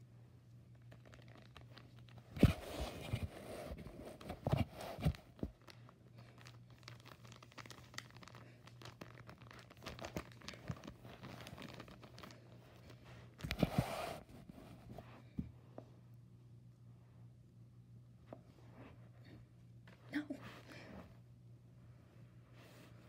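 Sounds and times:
plastic sheeting crinkling: 5.3 - 13.0.

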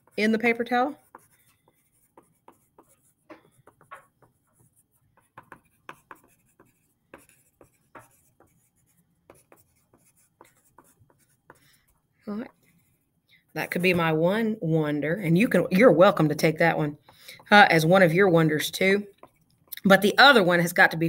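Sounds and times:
pen writing on paper: 1.0 - 12.0.

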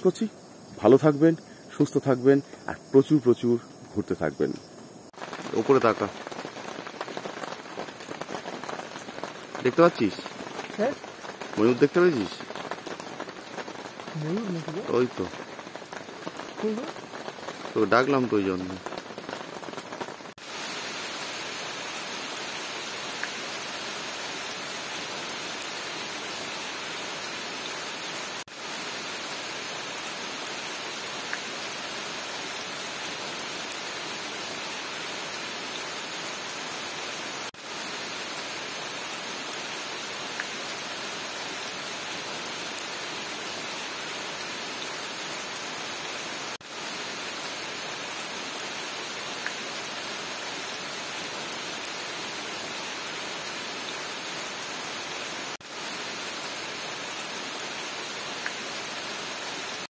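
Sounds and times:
steady rain: 0.0 - 59.9
faint raindrop ticks: 4.5 - 20.2, 23.2 - 23.4, 40.3 - 40.5, 49.4 - 49.6, 58.4 - 58.6.

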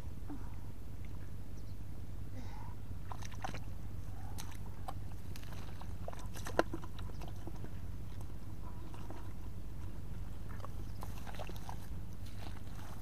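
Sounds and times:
fish splashing in bucket of water: 3.0 - 3.7, 4.4 - 8.2, 10.4 - 13.0.

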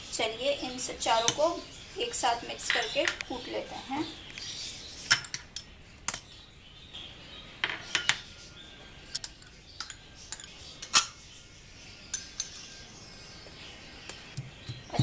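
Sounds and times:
glass bowls clinking on stone: 12.1 - 12.8.

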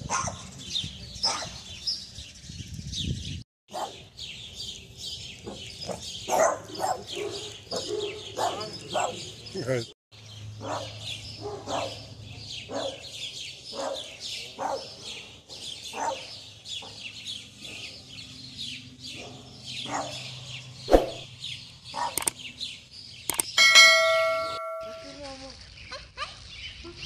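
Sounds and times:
birds chirping: 0.0 - 27.0
small dog barking: 0.1 - 0.4, 1.2 - 1.6, 3.7 - 4.0, 5.9 - 9.2, 10.6 - 12.0, 12.7 - 13.0, 13.7 - 14.9, 15.9 - 16.3, 19.2 - 20.2.

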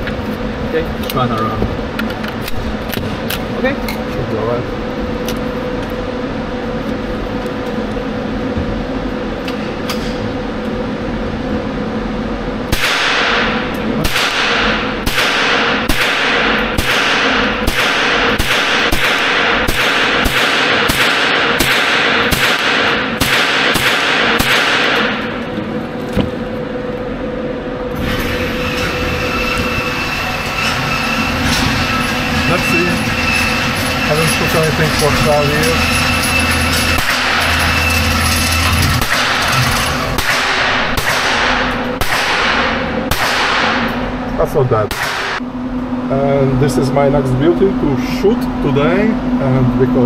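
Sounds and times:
steady hum: 0.0 - 50.0
rifle shots echoing indoors: 12.7 - 25.4, 40.2 - 44.0, 44.9 - 45.4.

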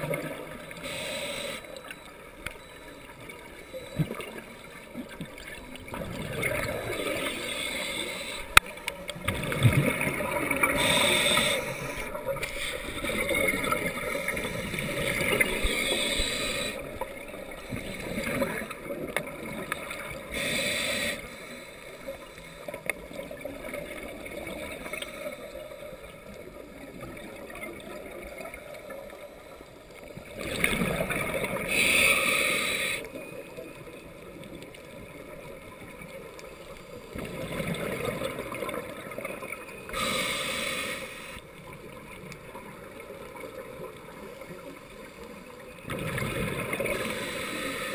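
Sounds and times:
regulator air hiss: 0.8 - 1.7, 10.8 - 12.8, 15.7 - 16.8, 20.3 - 21.9, 31.7 - 33.1, 39.9 - 41.4, 47.0 - 47.9.

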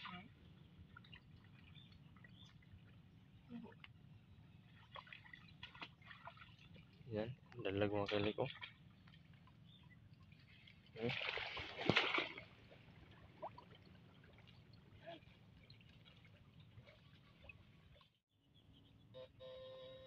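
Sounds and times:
water dripping and trickling: 4.8 - 12.3
hands splashing in water: 11.0 - 12.6.

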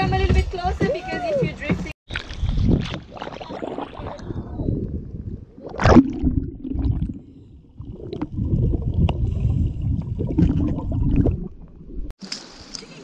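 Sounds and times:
underwater bubbles gurgling: 2.2 - 12.1.

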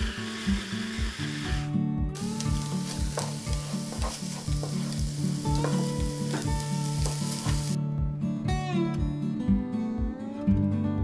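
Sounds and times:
onion sizzling in a pan: 0.0 - 7.8
background music with steady beat: 0.0 - 11.0.

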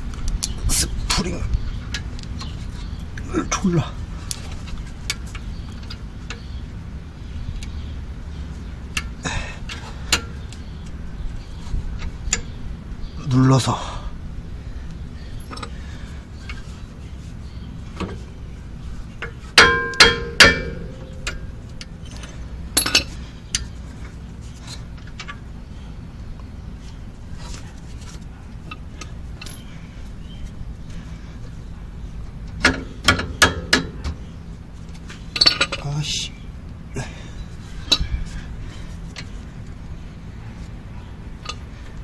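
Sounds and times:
metal-on-metal taps and clinks: 19.2 - 23.6, 32.5 - 34.2.

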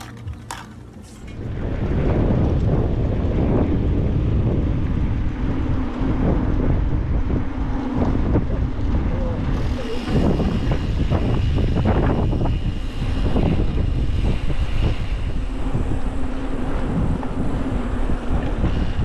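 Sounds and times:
tyre noise on asphalt: 0.0 - 2.7
wind buffeting microphone: 0.0 - 19.0.

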